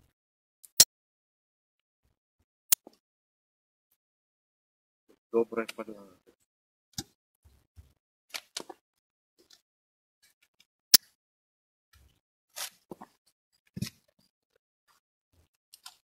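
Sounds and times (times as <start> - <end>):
scrape-like rustle: 12.5 - 13.1.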